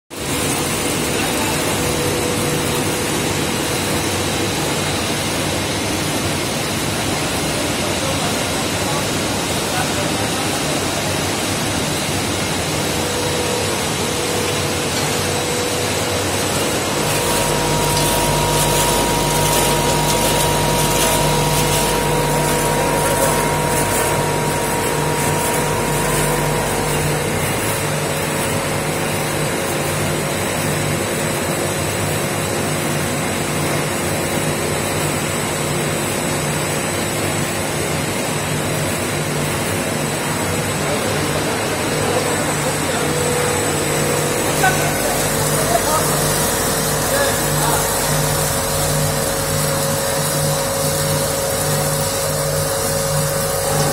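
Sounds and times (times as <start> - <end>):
machine drone: 0.2 - 53.9
deep machine rumble: 12.3 - 29.3.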